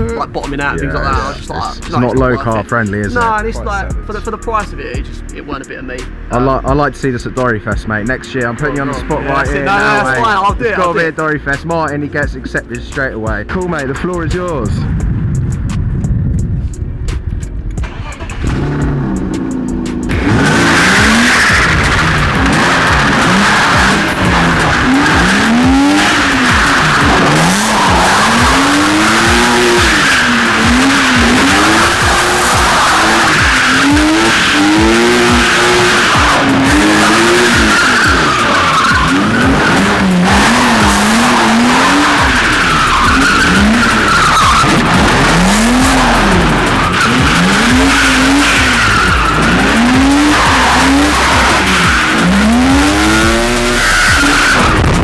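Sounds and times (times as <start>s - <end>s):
car engine revving: 0.0s - 55.0s
tyres squealing: 20.2s - 54.8s.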